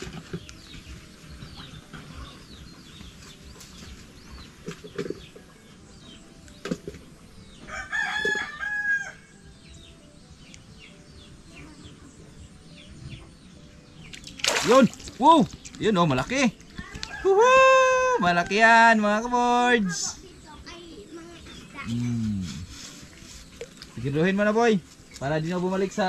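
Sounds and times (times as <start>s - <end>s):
faint bird chirping: 0.0s - 26.0s
rooster crowing: 7.7s - 9.2s, 17.0s - 18.9s.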